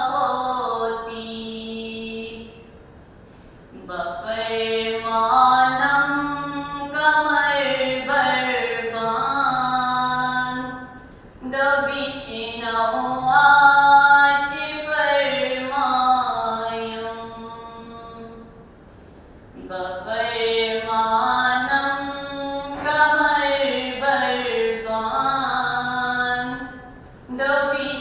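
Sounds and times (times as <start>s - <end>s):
person chanting: 4.2s - 18.4s.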